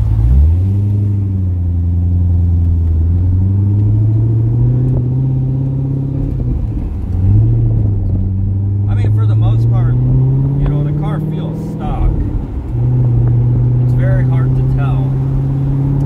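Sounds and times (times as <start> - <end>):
car engine at low revs: 0.0 - 16.0.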